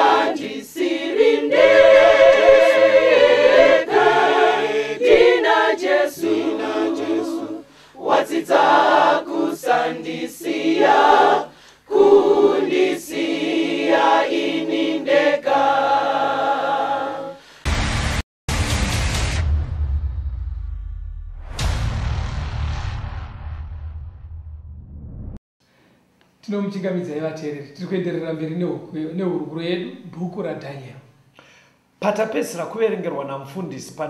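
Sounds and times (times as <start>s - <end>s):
choir singing a gospel song: 0.0s - 17.4s.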